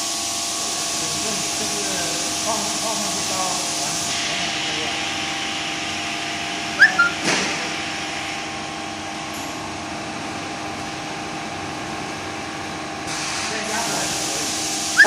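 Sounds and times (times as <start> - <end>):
welding machine hum and hiss: 0.0 - 6.6, 7.2 - 15.0
short squeaks: 6.8 - 7.2.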